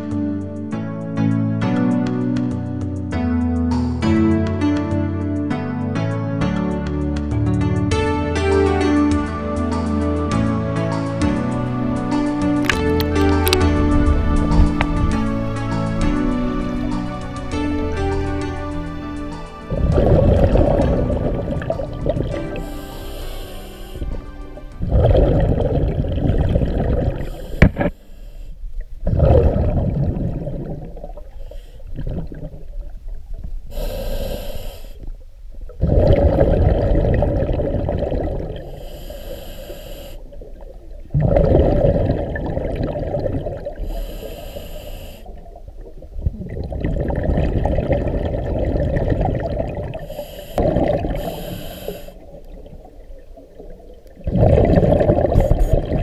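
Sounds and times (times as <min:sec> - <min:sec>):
hissing inhalations through regulator: 0:14.5 - 0:28.7, 0:31.2 - 0:32.2, 0:33.7 - 0:35.2, 0:38.3 - 0:40.8, 0:43.5 - 0:45.6, 0:49.2 - 0:52.9
underwater bubbles from exhalation: 0:19.7 - 0:23.3, 0:23.9 - 0:27.9, 0:29.0 - 0:33.1, 0:35.7 - 0:38.8, 0:40.2 - 0:44.2, 0:45.3 - 0:56.0.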